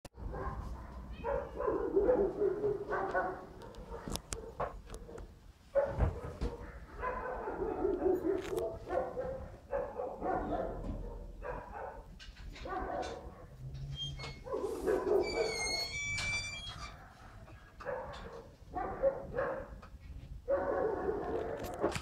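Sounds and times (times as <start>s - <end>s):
pet animal whining: 13.8s - 17.6s
short high squeak: 15.2s - 17.0s.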